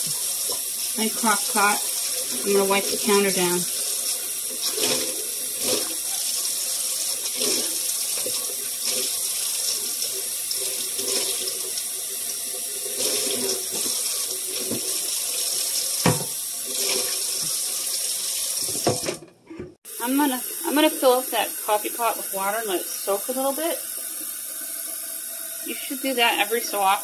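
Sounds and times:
tap running into sink: 0:13.0 - 0:15.2, 0:15.8 - 0:17.8, 0:18.5 - 0:19.2.

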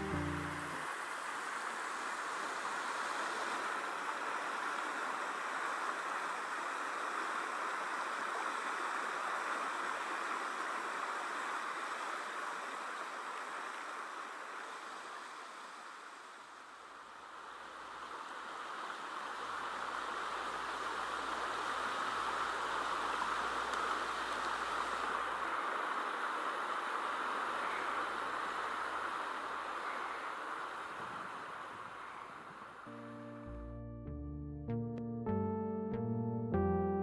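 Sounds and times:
water rushing over weir: 0:17.3 - 0:32.9.

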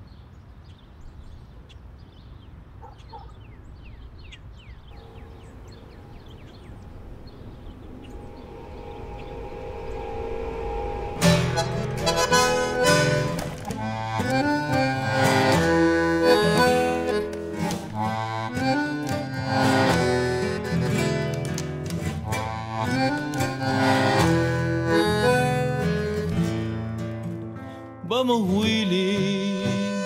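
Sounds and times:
guitar accompaniment: 0:08.3 - 0:30.0
bandoneon melody: 0:09.8 - 0:27.6, 0:28.8 - 0:30.0.

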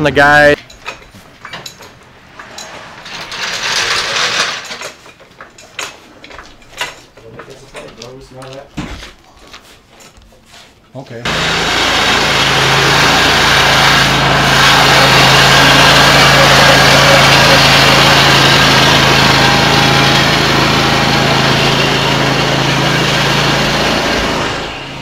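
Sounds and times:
mower engine running: 0:11.3 - 0:25.0.

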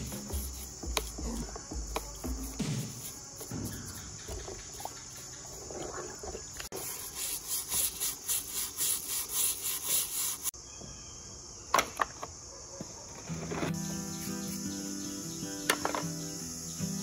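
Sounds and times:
brush scrubbing plastic: 0:00.0 - 0:10.5
water sloshing: 0:03.5 - 0:06.7.

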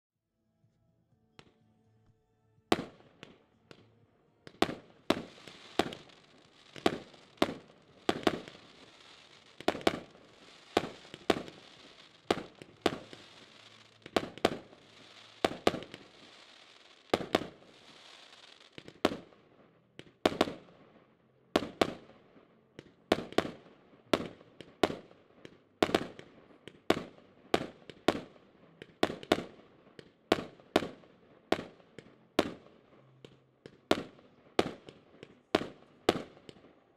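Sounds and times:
firework bangs: 0:04.5 - 0:19.4, 0:20.0 - 0:20.8
hiss of crackling stars: 0:05.0 - 0:19.0.

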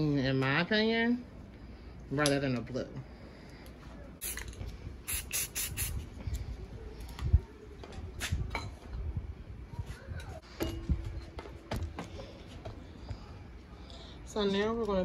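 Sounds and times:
spray paint can hissing: 0:04.2 - 0:06.1.

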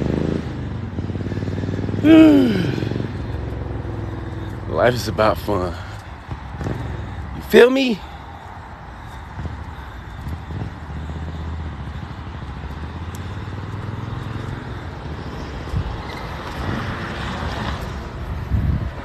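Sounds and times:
outdoor background noise: 0:00.0 - 0:19.0
engine idling: 0:01.2 - 0:15.2.

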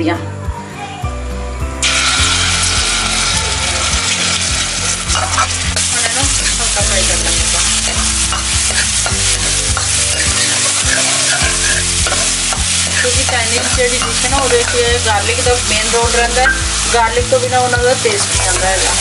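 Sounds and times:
garlic sizzling in hot oil: 0:01.8 - 0:19.0
ladle scraping a steel pan: 0:04.1 - 0:06.6, 0:07.4 - 0:14.9.

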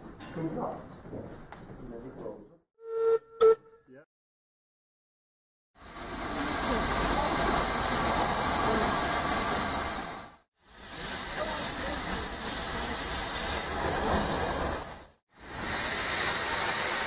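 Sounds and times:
steam locomotive hissing: 0:05.8 - 0:17.0.

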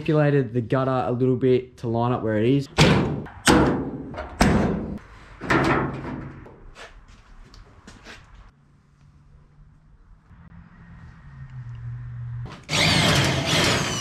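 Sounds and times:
heavy knocks on sheet metal: 0:02.8 - 0:06.3.

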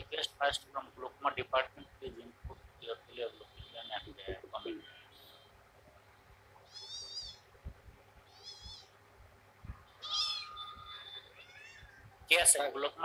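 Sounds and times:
small animal wavering calls: 0:06.6 - 0:07.5, 0:08.2 - 0:09.0, 0:09.9 - 0:12.1.

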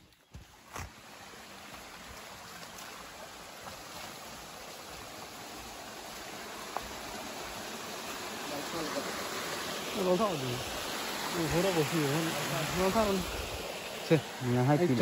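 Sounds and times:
footsteps on dirt trail: 0:00.0 - 0:01.0
stream water rushing: 0:00.4 - 0:15.0.

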